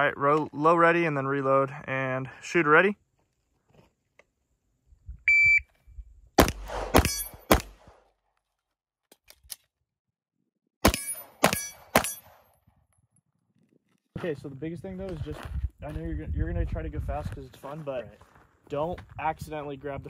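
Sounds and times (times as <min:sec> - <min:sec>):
shot timer beep: 0:05.3 - 0:05.7
pistol shots: 0:06.4 - 0:08.0, 0:10.8 - 0:12.5.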